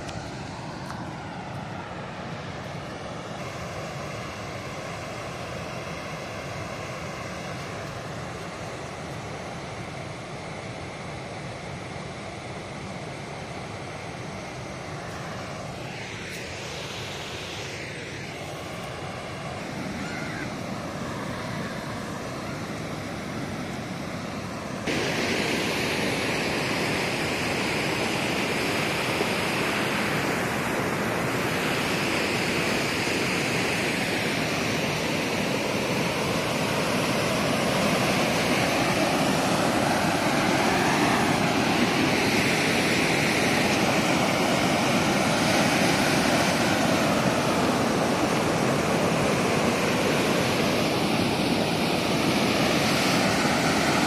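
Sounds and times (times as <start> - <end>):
water rushing over spillway: 18.8 - 54.0.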